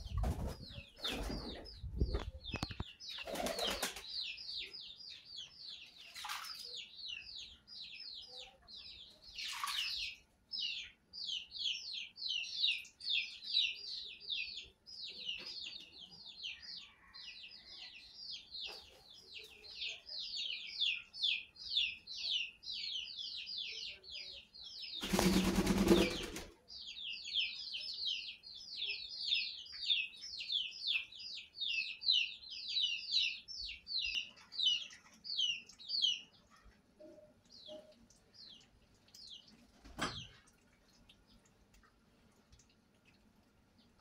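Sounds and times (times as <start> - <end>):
loud splashing wing flaps: 25.0 - 26.3.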